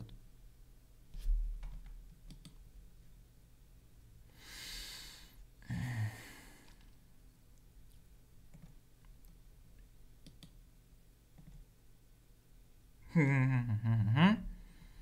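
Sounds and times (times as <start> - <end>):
man breathing out heavily: 4.4 - 6.8.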